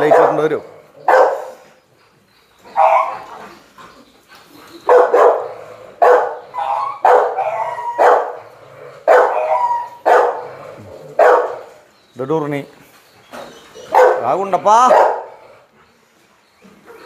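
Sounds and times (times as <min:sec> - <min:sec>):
dog barking: 0:00.0 - 0:01.6, 0:02.8 - 0:03.2, 0:04.9 - 0:08.4, 0:09.0 - 0:10.5, 0:11.2 - 0:11.7, 0:13.9 - 0:15.4.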